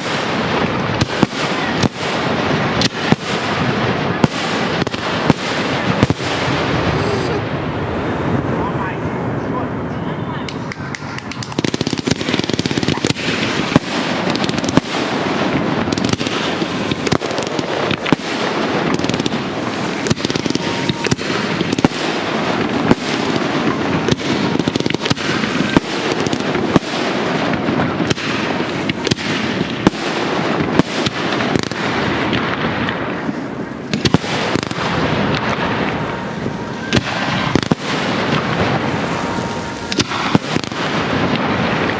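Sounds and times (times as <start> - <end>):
firework crackle: 0.0 - 41.9
firework shells bursting: 10.5 - 41.9.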